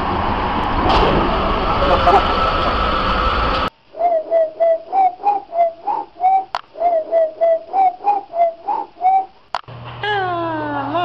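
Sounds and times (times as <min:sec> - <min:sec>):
short whistle-like notes: 0:04.0 - 0:09.3.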